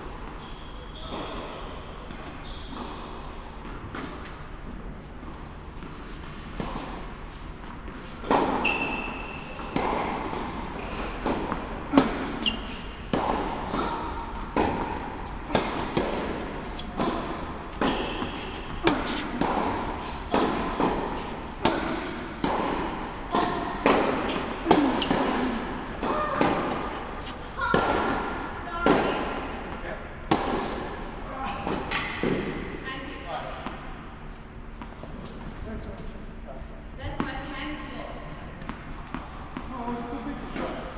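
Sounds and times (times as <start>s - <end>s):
tennis ball bounces: 7.7s - 29.5s, 30.2s - 31.0s
tennis racket hits: 8.2s - 29.4s.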